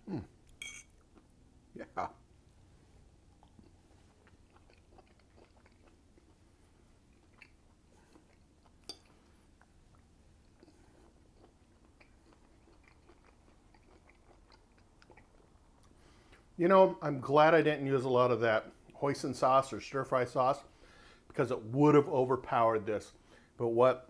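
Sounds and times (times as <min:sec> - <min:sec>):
chewing food with small crunches: 0:00.1 - 0:16.6.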